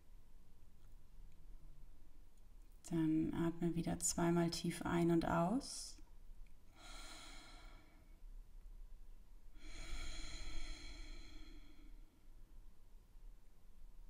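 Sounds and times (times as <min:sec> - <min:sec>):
woman breathing slowly: 0:06.6 - 0:08.3, 0:09.5 - 0:12.7.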